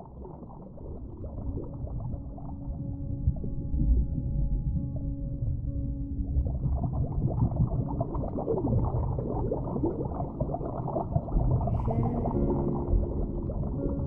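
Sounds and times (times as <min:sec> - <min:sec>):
underwater water bubbling: 0:00.0 - 0:14.0.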